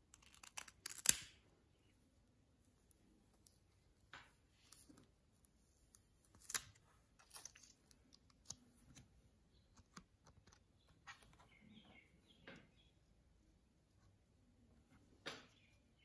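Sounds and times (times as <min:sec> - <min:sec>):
plastic sticker clicks and crinkles: 0:00.0 - 0:01.4, 0:06.3 - 0:09.1.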